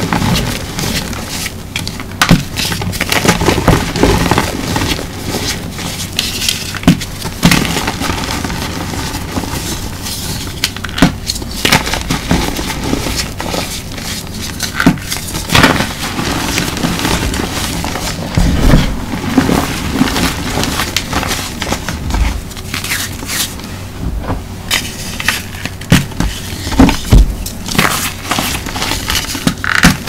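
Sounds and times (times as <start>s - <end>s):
gritty chalk crumbling and rubbing: 0.0s - 23.6s.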